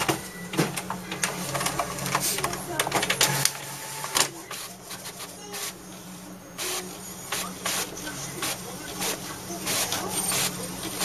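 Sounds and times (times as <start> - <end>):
printer mechanical sweeps: 0.0 - 11.0.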